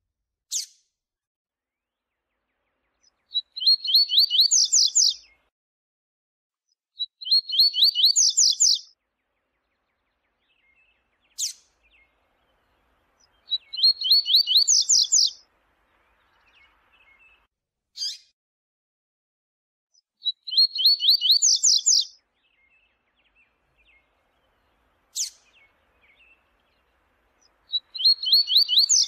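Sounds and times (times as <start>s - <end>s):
bird song: 1.7s - 5.5s, 6.7s - 18.3s, 19.9s - 29.0s
sharp bird call: 13.5s - 15.4s, 27.7s - 29.0s.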